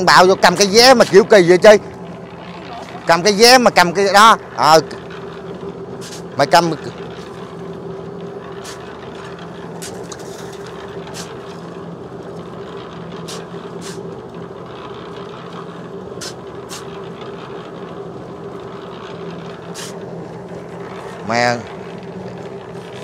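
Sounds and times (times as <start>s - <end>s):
concrete mixer humming: 0.0s - 23.0s
shovel scrapes and knocks: 6.0s - 6.2s, 8.6s - 11.4s, 13.3s - 14.0s, 16.2s - 16.9s, 19.7s - 20.0s.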